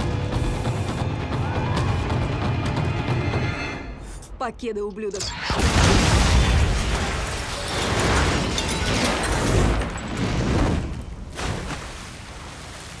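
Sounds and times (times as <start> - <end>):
explosion with rolling booms: 5.5 - 11.2.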